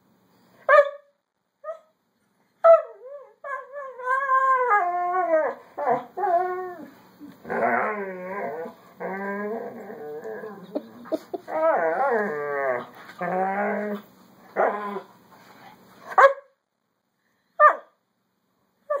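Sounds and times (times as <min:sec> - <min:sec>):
dog howling whines: 0:02.8 - 0:06.9.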